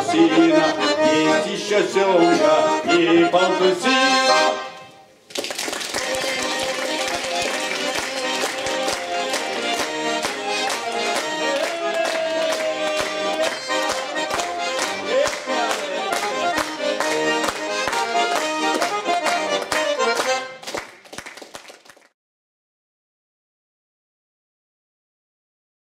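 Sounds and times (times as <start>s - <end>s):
button accordion folk dance tune: 0.0s - 5.1s, 5.9s - 21.0s
rhythmic claps or taps: 5.3s - 22.1s.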